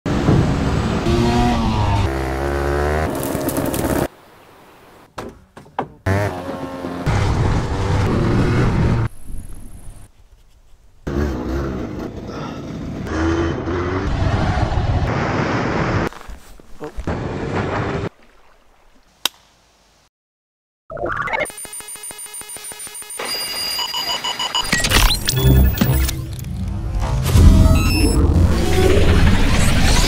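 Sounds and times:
motorcycle engine revving: 0:00.7 - 0:04.0, 0:11.1 - 0:15.0.

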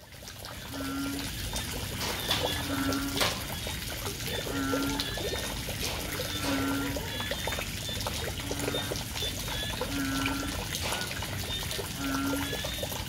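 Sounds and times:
trickling water: 0:00.0 - 0:13.0
frog hooting call: 0:04.3 - 0:05.4, 0:06.1 - 0:07.6, 0:08.3 - 0:10.7, 0:11.9 - 0:12.9.

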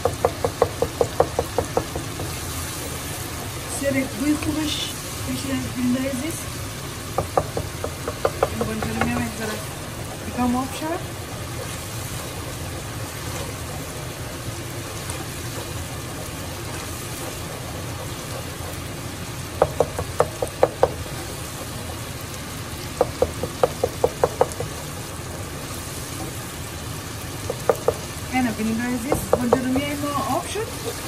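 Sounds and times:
spoon knocking on pot: 0:00.0 - 0:02.4, 0:07.2 - 0:09.6, 0:19.6 - 0:21.9, 0:23.0 - 0:24.8, 0:27.4 - 0:28.1, 0:29.0 - 0:30.0
wooden spoon stirring: 0:00.0 - 0:04.5, 0:07.1 - 0:31.0
food frying in a pot: 0:00.0 - 0:31.0.

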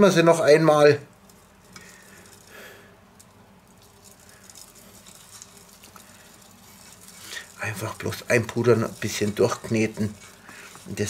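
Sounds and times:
spice shaker patter: 0:00.3 - 0:11.0
hands squishing raw meat: 0:03.1 - 0:11.0.

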